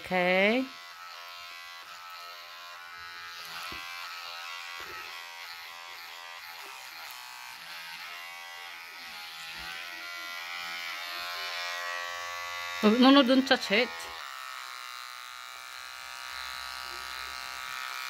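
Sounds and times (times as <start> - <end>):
electric hair clippers buzzing: 0.0 - 18.0.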